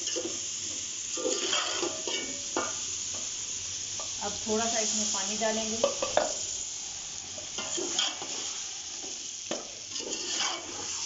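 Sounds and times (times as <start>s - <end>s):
vegetables sizzling in oil: 0.0s - 11.0s
metal spoon scraping pot: 9.9s - 11.0s.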